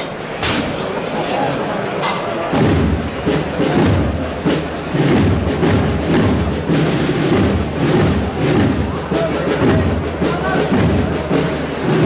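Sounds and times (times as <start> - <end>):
drums keeping a beat: 0.0 - 12.0
wind band playing a march: 2.6 - 12.0.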